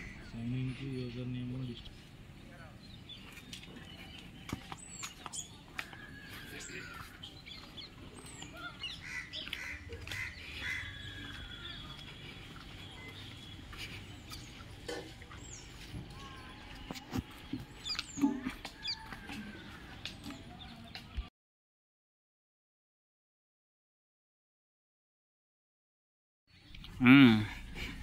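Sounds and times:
birds chirping and calling: 0:00.0 - 0:21.3.

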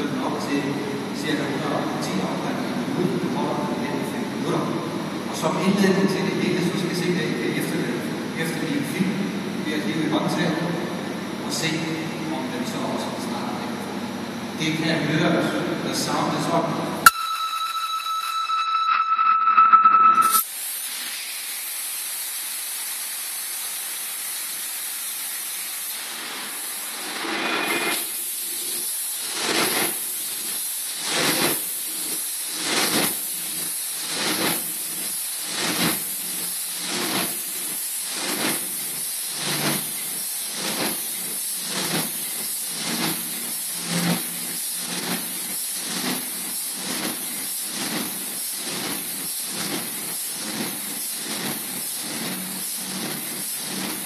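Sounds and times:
diesel engine hissing: 0:20.4 - 0:54.0.

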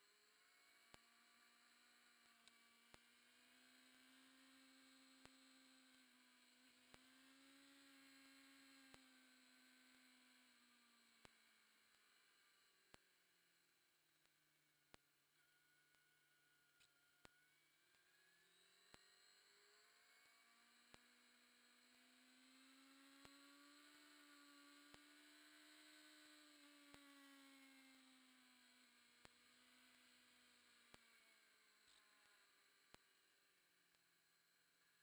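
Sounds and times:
faint whine: 0:00.0 - 0:35.0.

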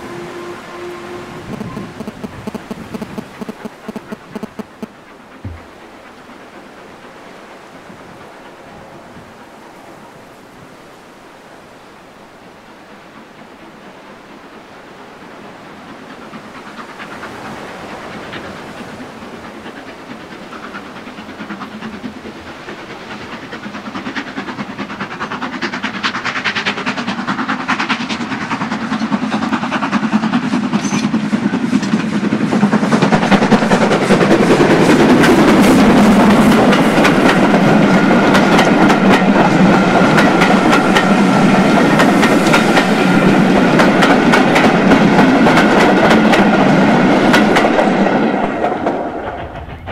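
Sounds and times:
steam locomotive passing: 0:00.0 - 0:49.9
wheels clacking over rail joints: 0:15.1 - 0:49.9.

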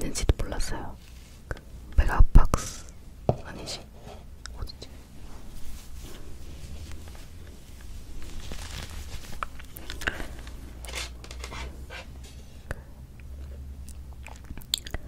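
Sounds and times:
low steady hum: 0:00.0 - 0:15.0
sweater collar rustling: 0:05.2 - 0:12.5.

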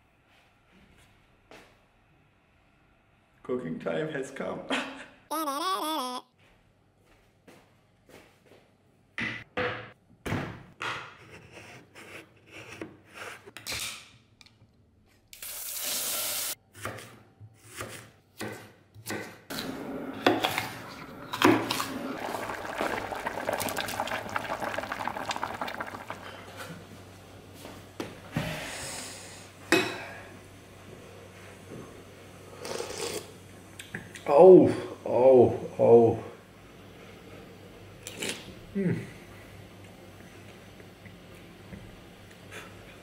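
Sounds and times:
running water: 0:21.0 - 0:26.5.

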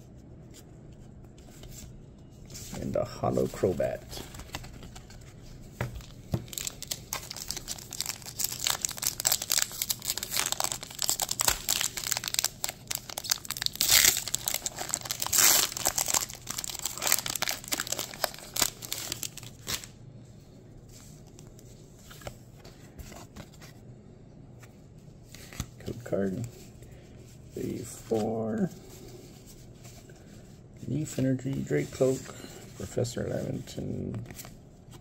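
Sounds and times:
faint handling of cards: 0:00.0 - 0:23.9, 0:24.6 - 0:35.0
foil wrapper tearing and crinkling: 0:06.5 - 0:19.9.

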